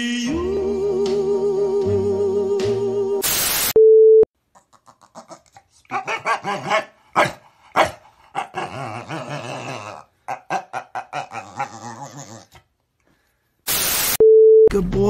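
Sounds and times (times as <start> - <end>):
dog whining: 8.4 - 12.6.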